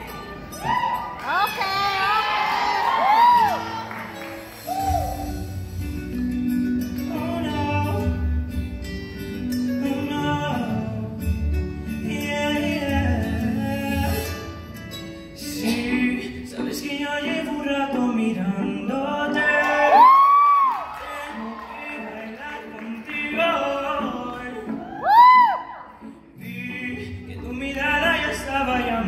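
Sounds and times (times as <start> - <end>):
man singing into a microphone: 7.0 - 8.6, 9.7 - 14.6, 15.4 - 29.0.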